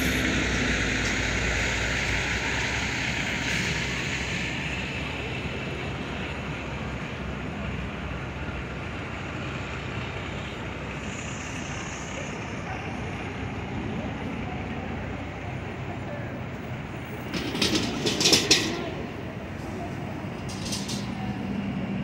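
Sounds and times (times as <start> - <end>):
city traffic noise: 0.0 - 22.0
sharp clattering knocks: 17.2 - 19.0.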